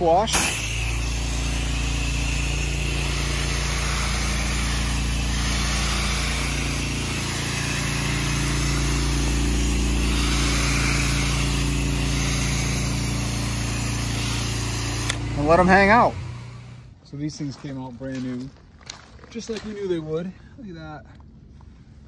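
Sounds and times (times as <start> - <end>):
pressure washer engine running: 0.0 - 17.0
hiss of spray wand: 0.4 - 15.2.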